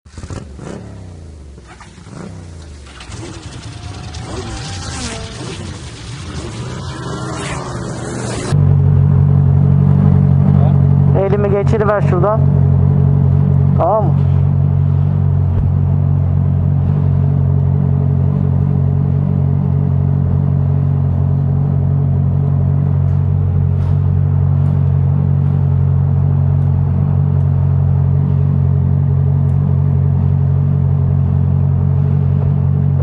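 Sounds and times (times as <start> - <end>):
motorcycle engine idling: 1.2 - 6.6.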